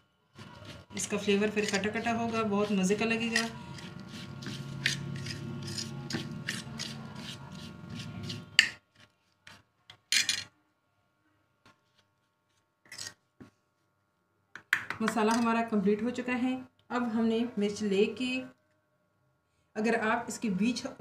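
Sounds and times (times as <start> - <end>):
spoon scraping spice paste on plate: 0.3 - 9.6.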